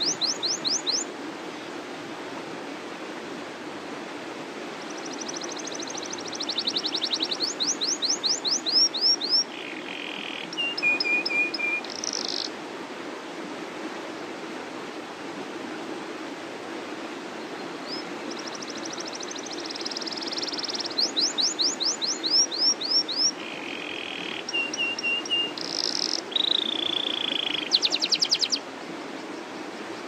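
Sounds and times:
canary singing trills: 0:00.0 - 0:01.0, 0:04.8 - 0:12.5, 0:17.8 - 0:28.6.

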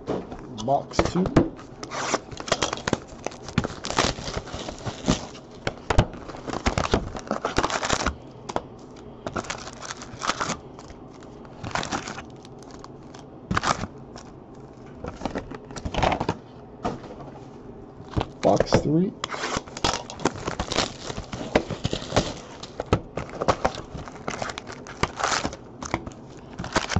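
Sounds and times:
foil packs crinkling: 0:00.6 - 0:16.4, 0:18.0 - 0:26.9
foil tearing: 0:01.7 - 0:08.2, 0:08.8 - 0:14.3, 0:19.3 - 0:26.9.

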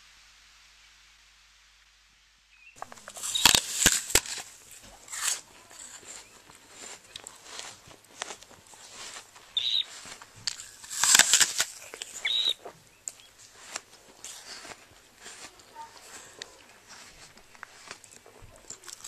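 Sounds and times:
short high bird chirps: 0:02.6 - 0:03.6, 0:09.5 - 0:10.0, 0:12.2 - 0:13.3
rustling: 0:02.8 - 0:19.0.

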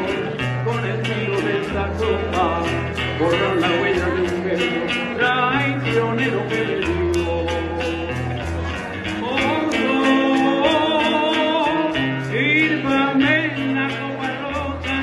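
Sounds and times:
acoustic guitar: 0:00.0 - 0:15.0
person singing: 0:00.0 - 0:15.0
shaker ticking a beat: 0:00.0 - 0:15.0.

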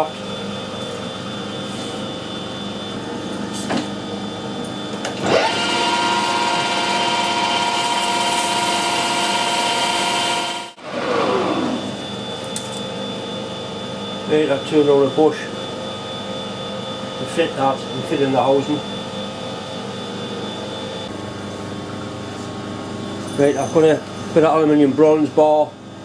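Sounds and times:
metal lathe humming and whining: 0:04.0 - 0:21.1.

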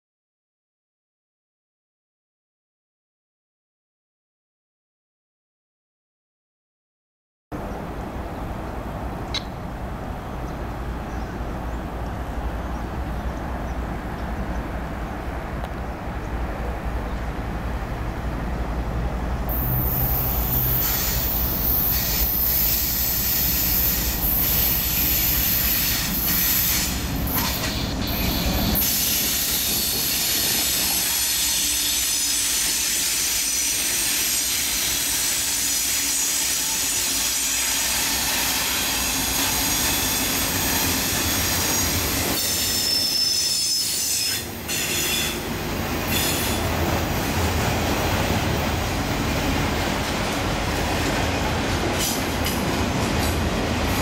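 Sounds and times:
diesel locomotive engine rumbling: 0:07.6 - 0:54.0
high-pitched wheel squeal: 0:35.6 - 0:45.4
wheels clickety-clack: 0:49.9 - 0:54.0.

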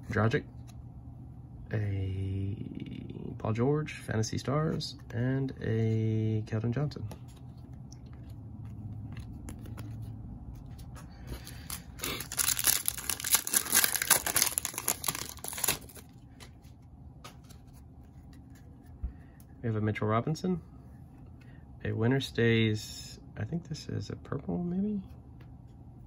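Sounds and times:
wrapper handling: 0:11.4 - 0:16.1
wrapper tearing and crinkling: 0:11.5 - 0:16.1.

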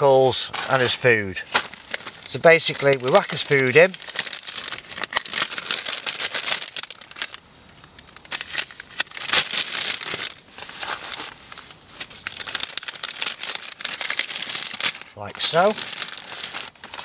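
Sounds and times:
plastic packaging crinkling: 0:01.5 - 0:17.0.

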